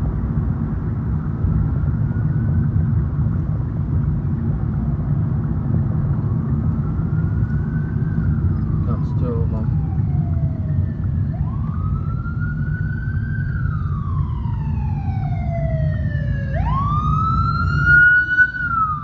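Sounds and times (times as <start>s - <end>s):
low rumble of engines and road: 0.0s - 19.0s
police siren wailing: 6.3s - 19.0s.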